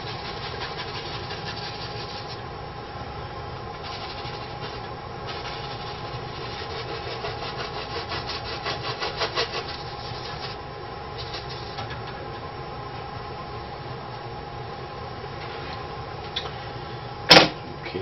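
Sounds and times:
paintbrush scrubbing on canvas: 0:00.0 - 0:02.4, 0:03.8 - 0:10.6.

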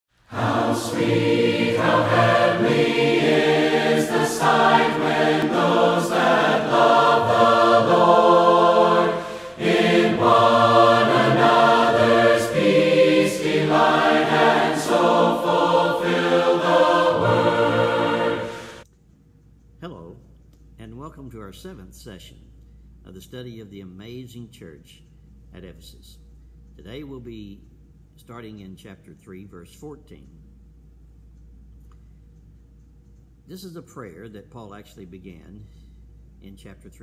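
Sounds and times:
choir singing sustained chords: 0:00.2 - 0:18.8.

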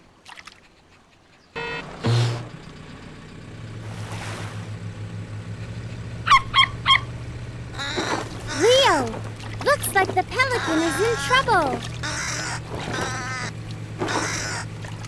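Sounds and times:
cartoon jeep engine: 0:01.4 - 0:15.0
pelican honking squawks: 0:07.7 - 0:09.0, 0:10.2 - 0:14.8.

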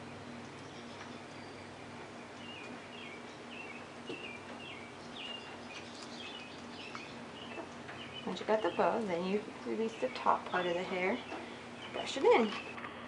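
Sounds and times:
small bird chirping: 0:00.0 - 0:12.8
faint steady hum: 0:00.0 - 0:13.0.

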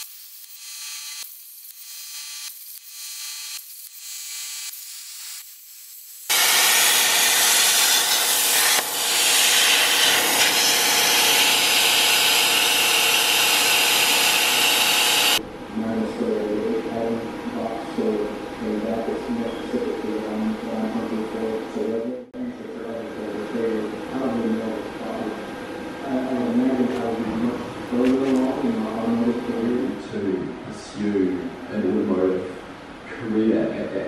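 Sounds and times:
plasma arc hissing: 0:00.0 - 0:15.4.

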